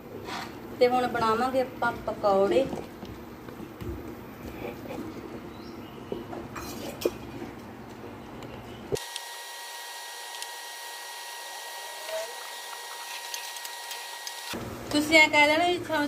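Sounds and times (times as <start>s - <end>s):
hands squishing batter: 12.0s - 14.5s.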